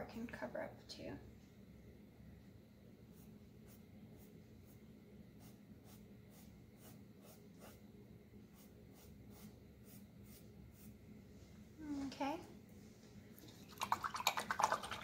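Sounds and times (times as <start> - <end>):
paintbrush strokes on canvas: 3.1 - 12.2.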